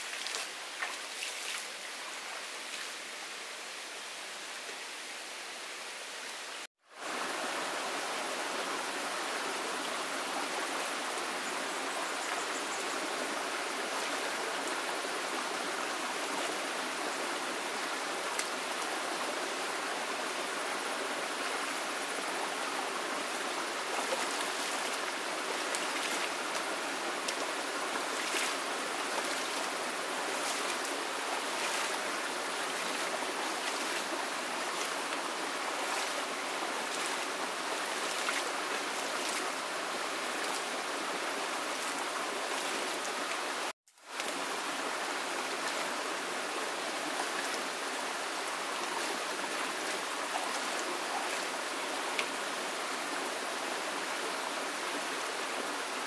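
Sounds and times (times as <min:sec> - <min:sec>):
stream running: 0:00.0 - 0:56.0
water splashing: 0:23.8 - 0:39.6.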